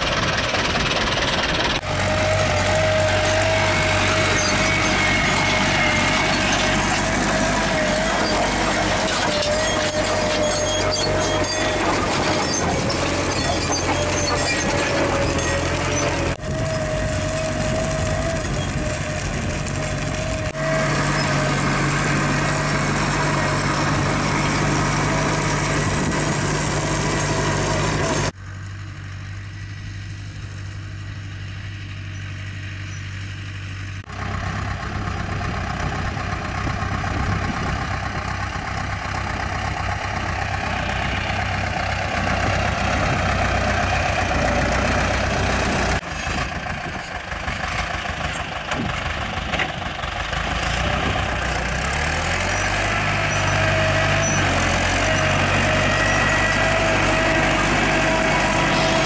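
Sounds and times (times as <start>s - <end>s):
tractor diesel engine running: 0.0s - 59.0s.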